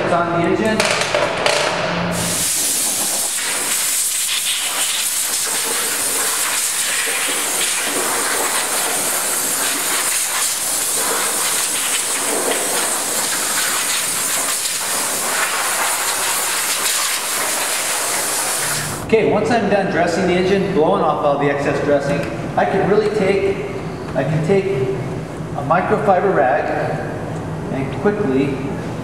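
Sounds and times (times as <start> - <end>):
air blow gun hissing: 2.1 - 19.0.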